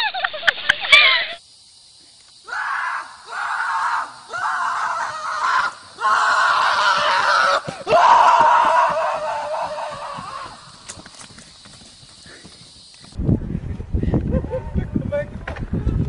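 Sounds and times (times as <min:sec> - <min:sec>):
loud screams: 0:00.8 - 0:01.4, 0:02.4 - 0:10.9.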